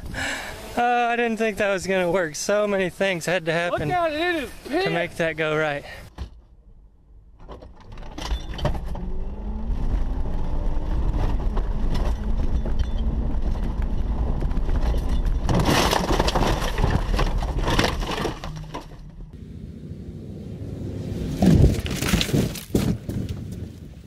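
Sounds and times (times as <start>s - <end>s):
car engine accelerating: 8.7s - 15.1s
vehicle crashing and crunching: 10.7s - 19.4s, 21.2s - 23.3s.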